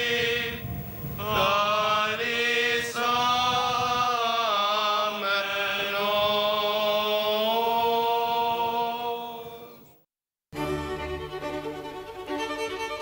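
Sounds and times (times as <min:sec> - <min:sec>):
liturgical chant singing: 0:00.0 - 0:10.0.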